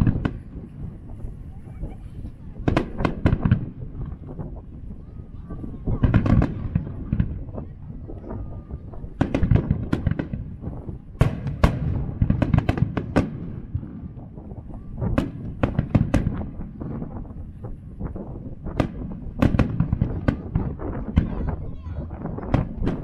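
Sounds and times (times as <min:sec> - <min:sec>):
firework shells bursting: 0:08.2 - 0:21.6.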